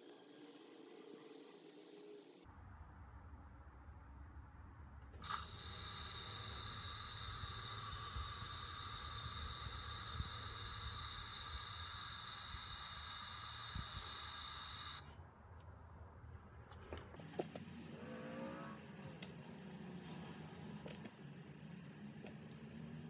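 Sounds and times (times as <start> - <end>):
aerosol can spraying hiss: 5.2 - 15.0.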